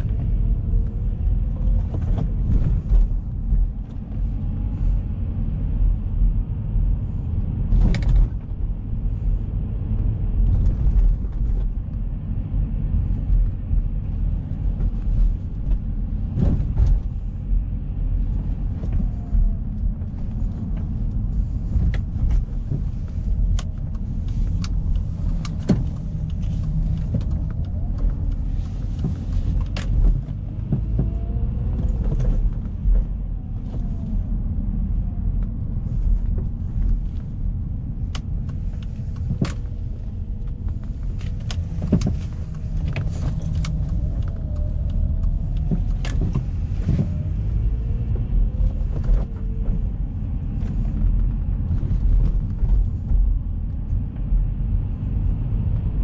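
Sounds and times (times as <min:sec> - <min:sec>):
car engine rumble: 0:00.0 - 0:56.0
road noise: 0:00.0 - 0:56.0
sharp clicks and knocks: 0:38.1 - 0:47.4.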